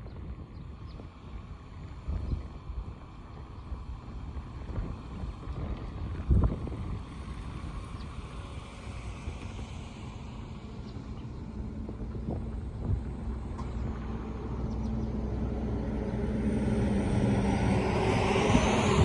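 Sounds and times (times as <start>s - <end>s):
vehicle engine rumble: 0.0s - 19.0s
high whine rising in pitch: 14.1s - 19.0s.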